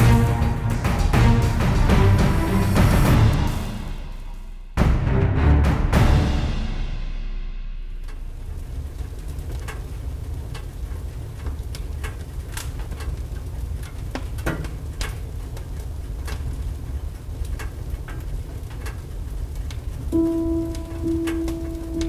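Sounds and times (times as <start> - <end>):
wood fire rumbling: 0.0 - 4.5, 7.8 - 22.0
fire pops and crackles: 7.9 - 22.0.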